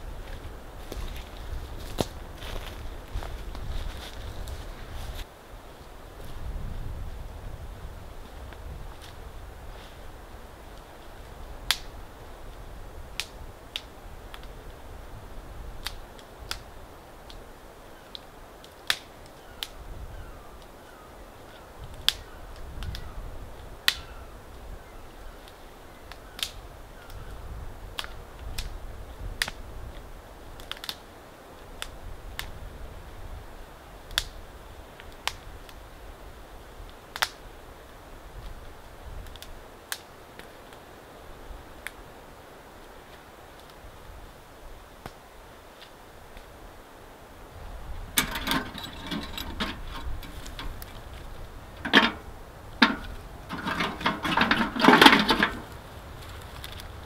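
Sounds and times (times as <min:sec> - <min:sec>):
twigs snapping: 0:48.2 - 0:57.0.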